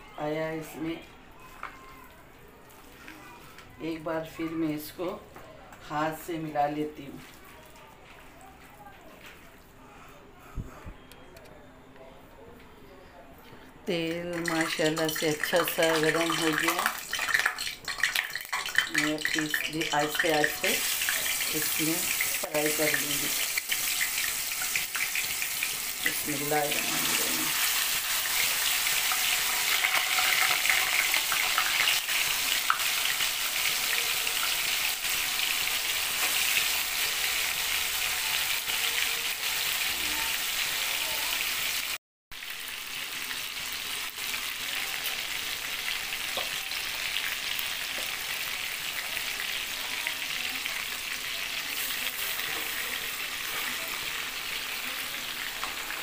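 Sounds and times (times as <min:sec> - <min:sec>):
meat sizzling in hot oil: 0:14.3 - 0:56.0.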